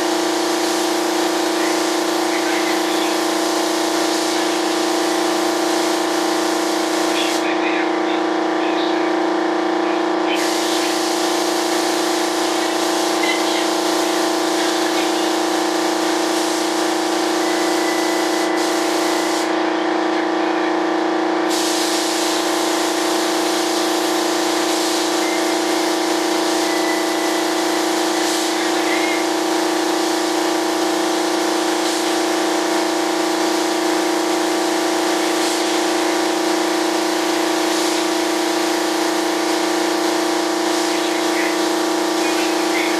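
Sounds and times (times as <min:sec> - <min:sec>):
spray gun hissing: 0:00.0 - 0:07.6, 0:10.4 - 0:19.6, 0:21.5 - 0:42.9
steady machine hum: 0:00.0 - 0:42.9.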